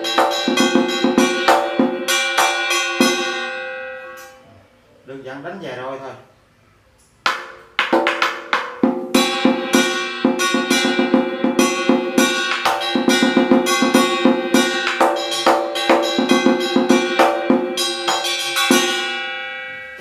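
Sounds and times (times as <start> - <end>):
war drum beaten with sticks: 0.0 - 3.4, 7.3 - 19.1
metallic ringing: 0.0 - 4.5, 8.0 - 20.0.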